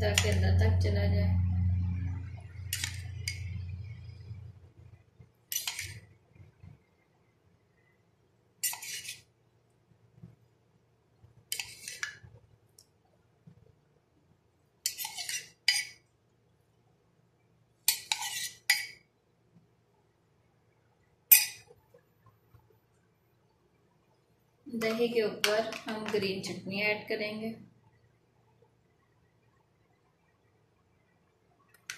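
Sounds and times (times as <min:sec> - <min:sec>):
metal spoon scraping glass bowl: 0:00.0 - 0:00.6, 0:02.0 - 0:04.3, 0:05.5 - 0:06.1, 0:08.6 - 0:09.3, 0:11.5 - 0:12.2, 0:14.8 - 0:16.0, 0:17.9 - 0:19.0, 0:21.3 - 0:21.7.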